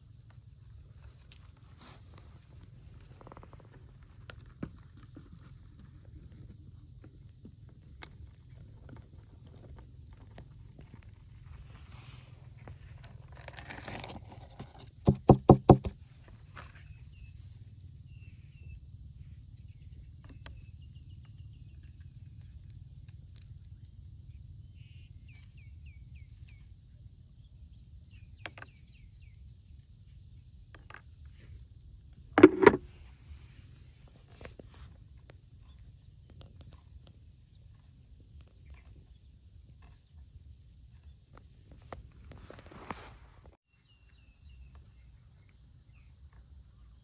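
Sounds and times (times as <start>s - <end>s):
hollow knocks on plastic tray: 15.0s - 16.0s, 32.4s - 32.8s.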